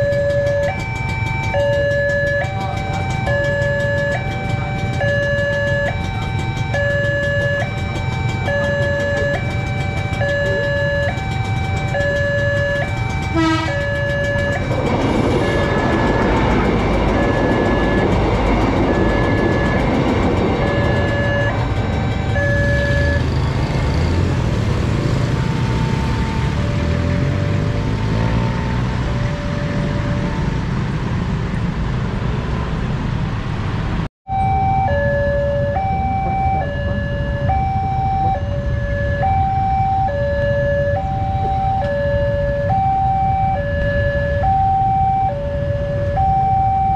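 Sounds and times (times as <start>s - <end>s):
level-crossing alarm two-note pattern: 0.0s - 30.5s, 34.3s - 46.9s
motorcycle engines and traffic rumble: 0.0s - 46.9s.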